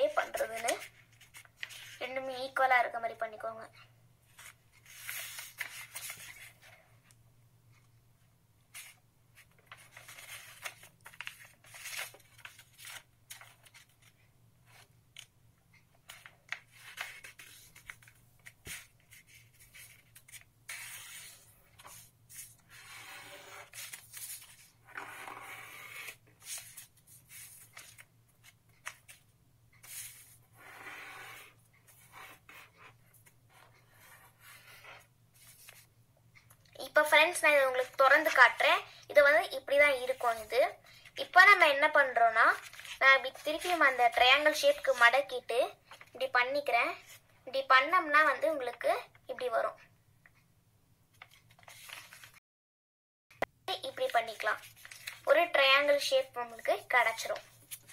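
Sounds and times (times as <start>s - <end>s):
paper rustling and crinkling: 0.0s - 2.0s, 4.3s - 6.8s, 8.7s - 15.3s, 16.0s - 22.8s, 23.6s - 25.3s, 26.1s - 30.4s, 33.1s - 35.9s, 42.4s - 45.0s, 51.1s - 52.4s, 53.9s - 55.3s, 57.0s - 57.9s
paper scraping on wooden table: 20.7s - 28.0s, 29.8s - 33.0s.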